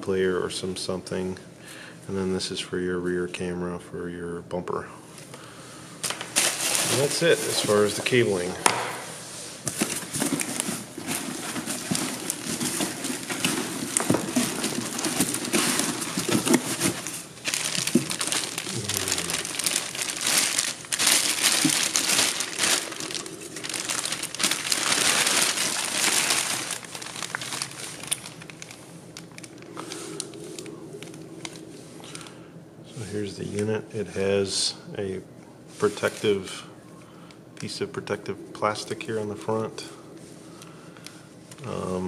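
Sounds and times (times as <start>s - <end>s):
plastic bag crinkling: 6.0s - 8.5s, 9.6s - 32.4s.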